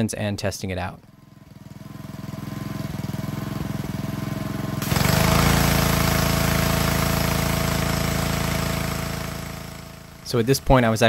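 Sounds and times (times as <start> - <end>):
pressure washer engine running: 1.1 - 11.0
water jet hissing on concrete: 4.8 - 11.0.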